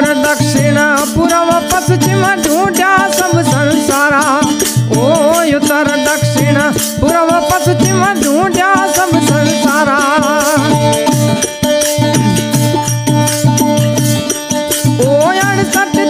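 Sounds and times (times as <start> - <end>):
wavering melody line: 10.6 - 15.6
plucked string drone: 11.2 - 14.3.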